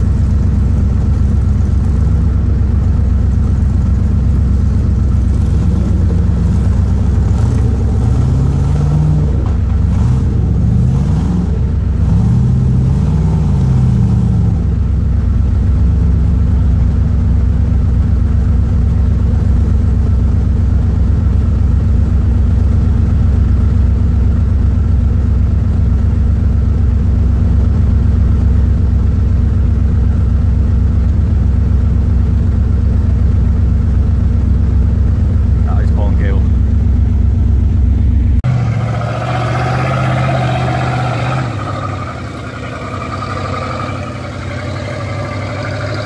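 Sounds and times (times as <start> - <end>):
vehicle engine idling: 0.0 - 46.0
engine revving: 3.2 - 14.9, 38.4 - 46.0.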